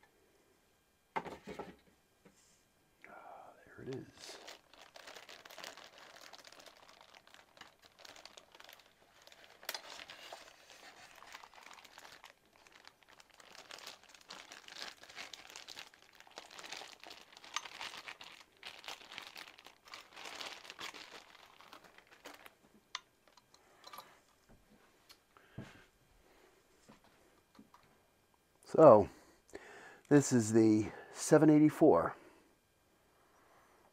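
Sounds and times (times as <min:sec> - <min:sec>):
packaging crinkling and rustling: 0:03.9 - 0:24.4.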